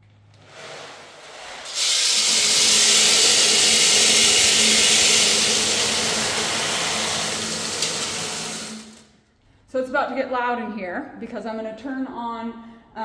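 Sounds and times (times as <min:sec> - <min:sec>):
blower rushing air: 0:00.4 - 0:09.2.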